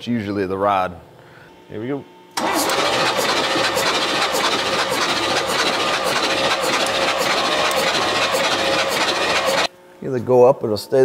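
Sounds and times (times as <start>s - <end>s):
starter cranking engine: 2.4s - 9.7s.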